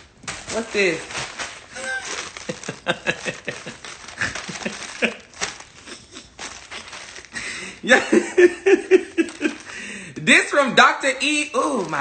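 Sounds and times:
plastic bag crinkling: 0:00.0 - 0:07.9, 0:08.6 - 0:12.0
man laughing: 0:01.8 - 0:06.4, 0:07.8 - 0:09.6.

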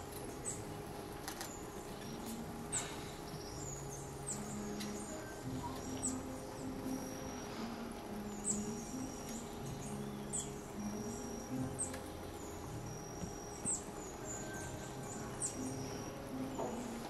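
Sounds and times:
faint background music: 0:00.0 - 0:17.0
thin high steady tone: 0:00.0 - 0:17.0
high falling chirps: 0:01.4 - 0:17.0.

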